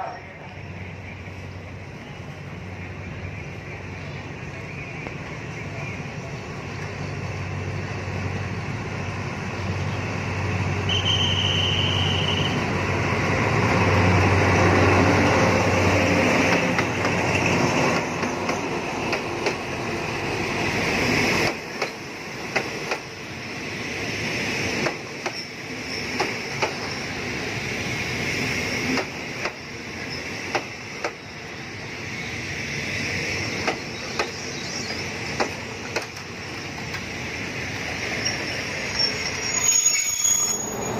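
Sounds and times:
diesel locomotive passing: 0.0s - 40.9s
wheels clacking over rail joints: 33.6s - 37.1s.

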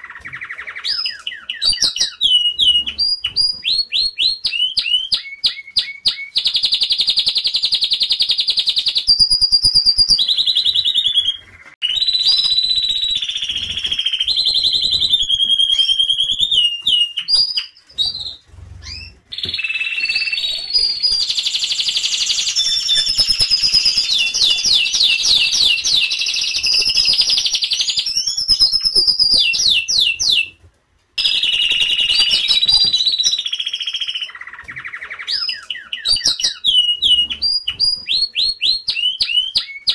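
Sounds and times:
canaries singing trills: 0.0s - 30.6s, 31.2s - 39.9s.

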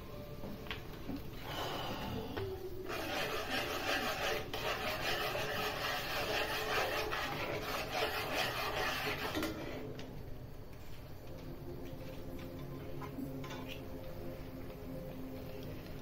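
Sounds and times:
metal spoon scraping frying pan: 2.9s - 9.8s.

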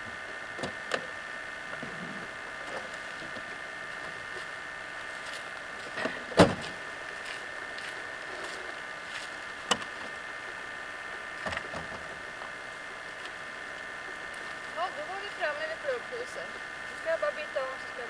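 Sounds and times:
steady hum: 0.0s - 18.0s
car door thump: 6.4s - 6.6s.

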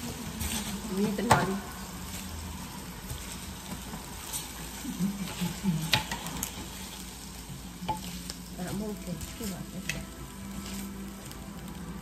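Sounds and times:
meat sizzling on grill: 0.0s - 12.0s.

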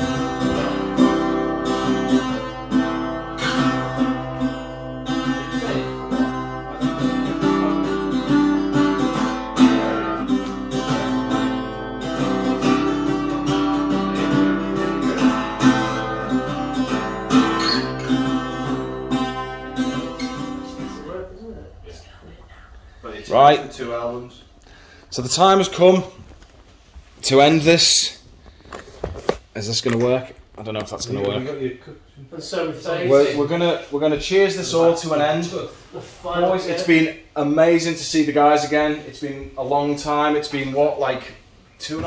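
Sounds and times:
acoustic guitar strumming: 0.0s - 21.8s.

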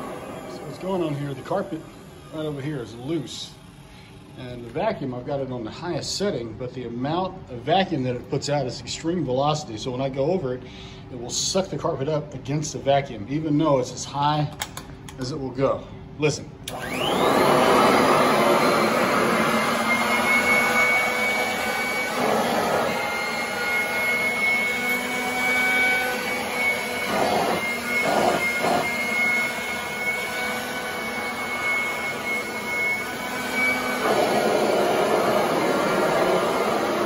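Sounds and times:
upright vacuum whining: 0.0s - 4.7s, 16.6s - 37.0s.

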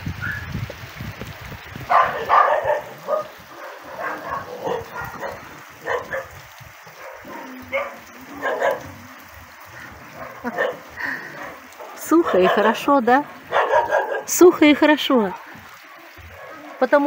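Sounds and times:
young dogs barking and yipping: 1.8s - 14.4s, 15.1s - 17.0s.

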